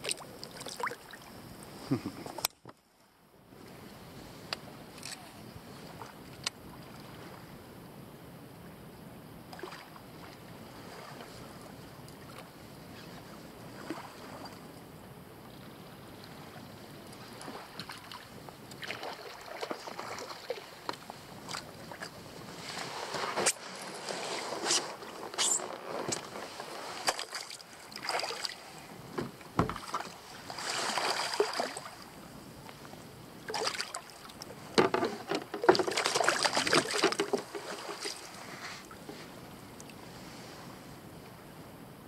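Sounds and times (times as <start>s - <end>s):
water lapping at kayak hull: 0.0s - 2.8s, 3.5s - 7.6s, 9.4s - 41.6s
fishing gear clicks and knocks: 34.8s - 38.2s.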